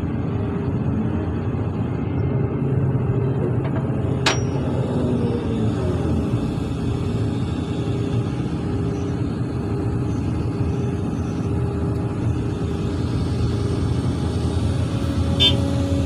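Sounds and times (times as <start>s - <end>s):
excavator diesel engine running: 0.0s - 16.0s.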